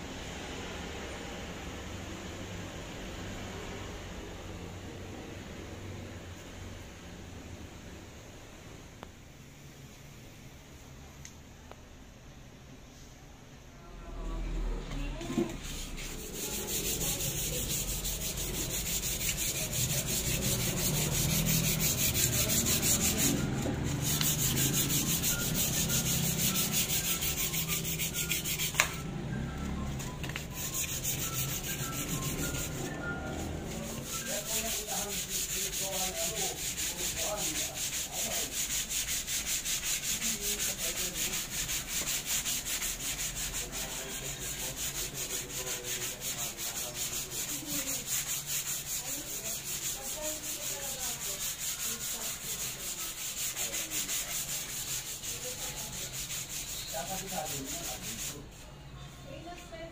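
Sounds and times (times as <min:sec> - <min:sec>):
sandpaper rubbing on wood: 0:15.4 - 0:29.1, 0:29.9 - 0:58.5.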